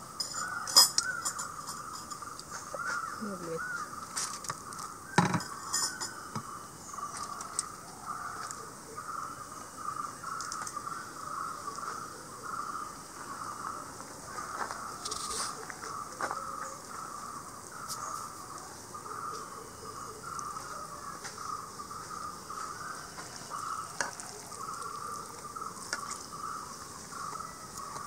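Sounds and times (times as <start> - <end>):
insects chirping: 0.0 - 28.0
plates and spoon clinking: 0.2 - 2.3, 5.2 - 6.4.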